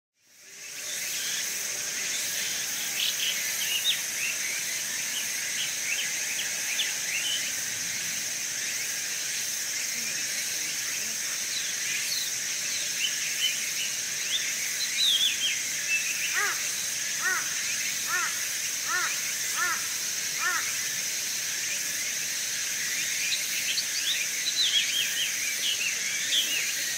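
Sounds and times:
high insect drone: 0.2s - 26.9s
bird repeated arching calls: 16.3s - 20.8s.

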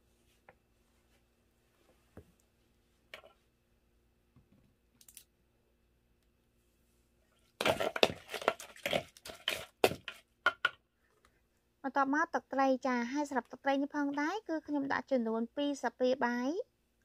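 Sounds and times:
small clicks: 5.0s - 5.3s.

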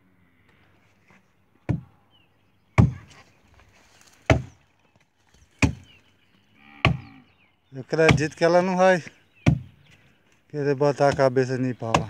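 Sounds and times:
axe chopping into tree trunk: 1.7s - 1.9s, 2.8s - 3.1s, 4.2s - 4.6s, 5.6s - 5.9s, 9.4s - 9.7s.

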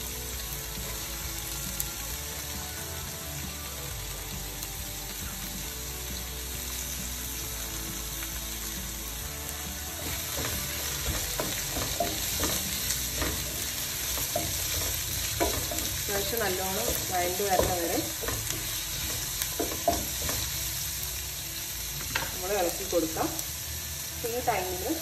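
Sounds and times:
onions sizzling in a frying pan: 0.0s - 25.0s
wooden spatula scraping: 9.9s - 20.6s.

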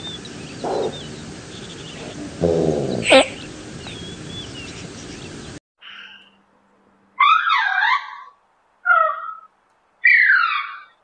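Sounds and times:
animal calling: 0.0s - 5.3s, 7.2s - 11.0s
small birds chirping: 0.0s - 6.4s.

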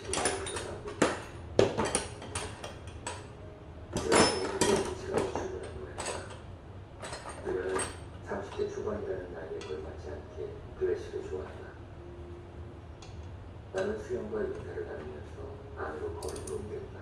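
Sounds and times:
metal tools clinking in plastic case: 0.0s - 3.2s, 4.0s - 6.4s, 7.0s - 8.7s.

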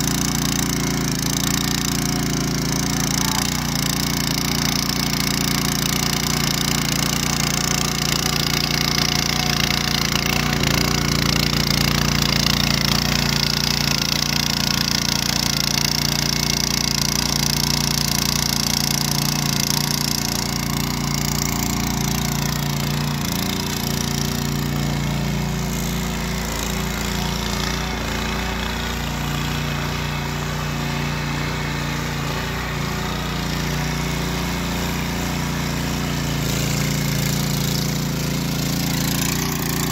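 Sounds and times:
cultivator engine running: 0.0s - 39.9s.

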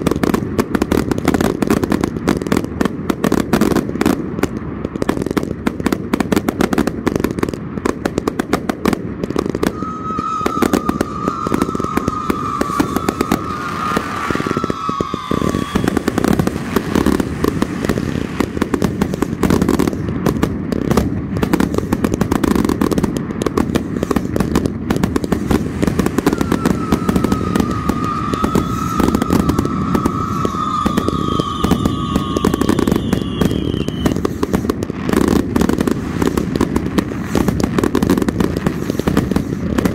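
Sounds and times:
fireworks popping and crackling: 0.0s - 39.9s
firework whistle: 8.8s - 20.1s, 23.6s - 39.9s.

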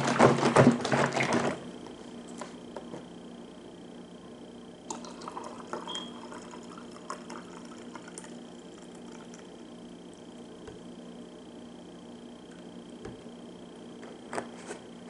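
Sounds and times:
liquid pouring into a glass: 4.9s - 9.5s.

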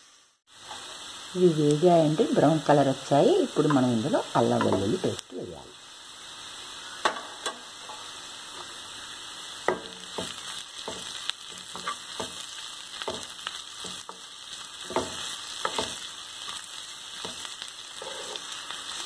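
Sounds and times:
onions sizzling in oil: 0.0s - 19.0s
spoon scraping and knocking pan: 4.5s - 5.0s, 7.0s - 8.8s, 9.6s - 18.6s.

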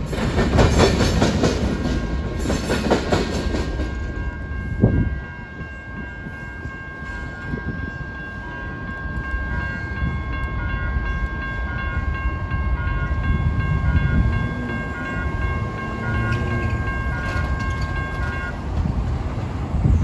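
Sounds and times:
crossing warning bell ringing: 0.0s - 20.0s
cars rumbling over crossing: 12.9s - 20.0s.

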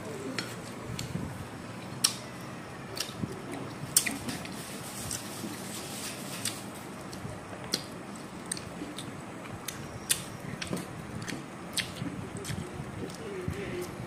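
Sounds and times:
wet chewing and mouth clicks: 2.9s - 5.2s, 6.4s - 13.9s.

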